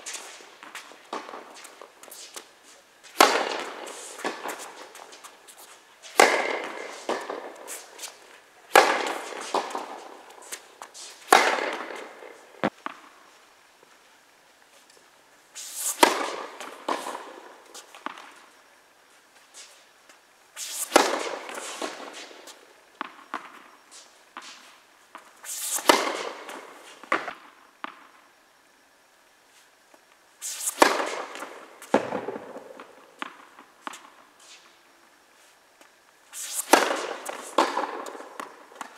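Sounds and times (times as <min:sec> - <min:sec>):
tennis ball bouncing: 0:00.0 - 0:02.4, 0:03.0 - 0:13.1, 0:30.5 - 0:34.1, 0:36.3 - 0:38.9
tennis ball hit by racket: 0:03.1 - 0:13.0, 0:15.6 - 0:17.4, 0:20.6 - 0:23.6, 0:25.1 - 0:28.0, 0:30.4 - 0:34.1, 0:36.3 - 0:38.9.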